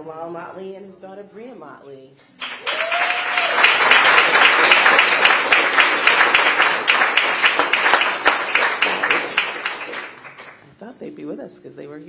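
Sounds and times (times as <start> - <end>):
audience applauding: 2.4 - 10.7.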